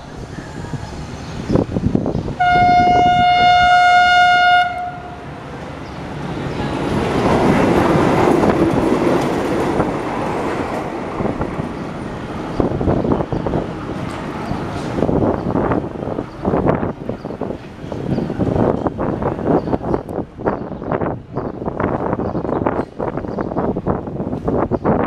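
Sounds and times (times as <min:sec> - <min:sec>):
rail vehicle engine and wheels: 0:00.0 - 0:25.0
rail vehicle horn blast: 0:02.4 - 0:05.3.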